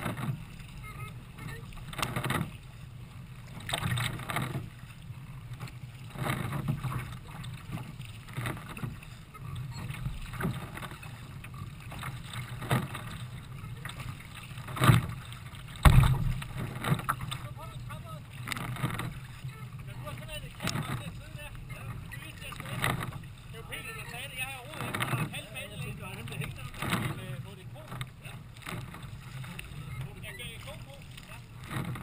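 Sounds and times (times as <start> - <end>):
paddle strokes splashing: 0.0 - 32.0
water washing against hull: 0.0 - 32.0
heavy splashes or thumps: 14.6 - 17.4.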